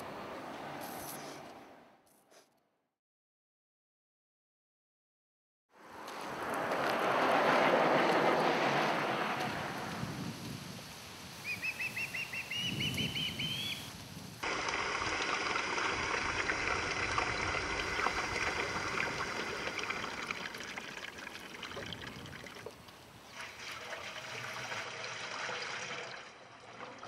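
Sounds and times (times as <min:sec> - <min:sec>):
running water hiss: 0:09.8 - 0:25.3
songbird trilling: 0:11.4 - 0:13.9.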